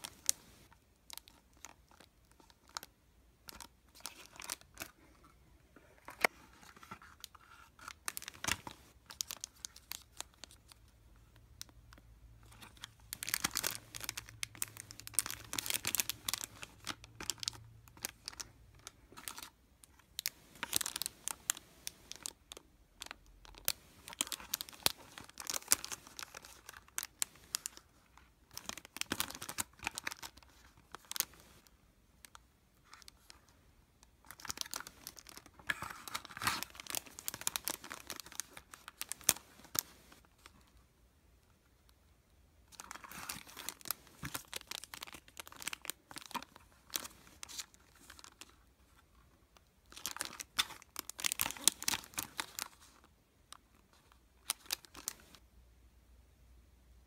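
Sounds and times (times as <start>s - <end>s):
packaging rustling and tearing: 6.1s - 10.8s, 12.4s - 27.9s, 28.5s - 31.7s, 34.3s - 40.5s, 42.7s - 48.6s, 49.8s - 53.0s, 54.0s - 55.4s.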